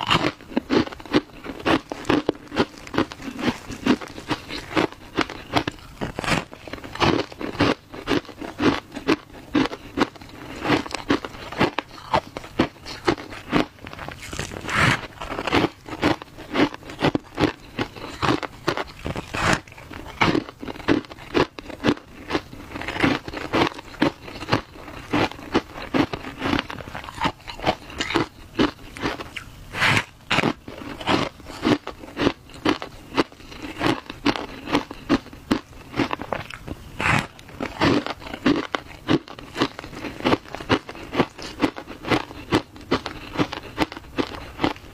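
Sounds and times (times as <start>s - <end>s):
person crunching ice: 0.0s - 44.9s.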